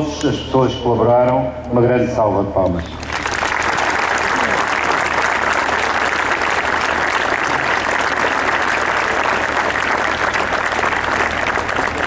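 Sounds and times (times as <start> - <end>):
crowd applauding: 3.0 - 12.0.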